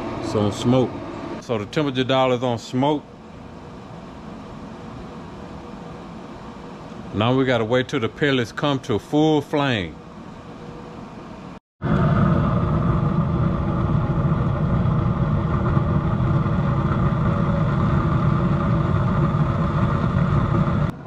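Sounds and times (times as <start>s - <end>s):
pellets burning with rushing noise: 0.0s - 2.2s, 11.8s - 21.0s
grill fan humming: 0.0s - 21.0s.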